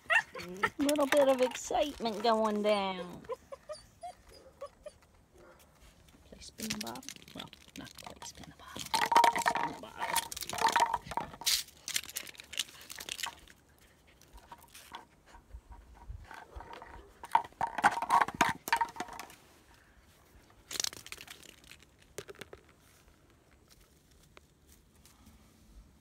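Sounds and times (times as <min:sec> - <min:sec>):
puppy chewing plastic bottle: 0:06.6 - 0:13.6, 0:16.0 - 0:19.3.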